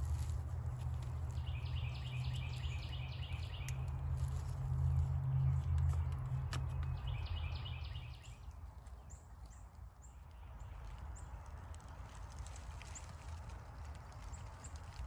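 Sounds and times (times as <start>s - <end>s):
bird chirping: 1.3s - 4.4s, 5.4s - 10.9s.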